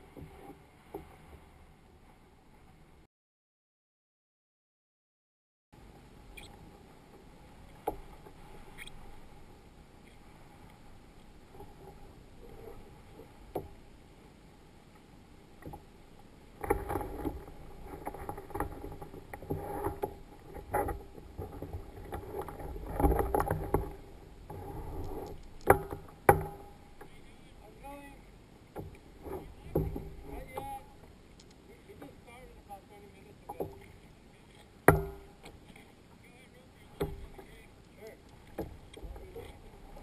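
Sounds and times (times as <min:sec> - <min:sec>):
water lapping against plastic hull: 0:15.5 - 0:32.5, 0:33.1 - 0:40.0.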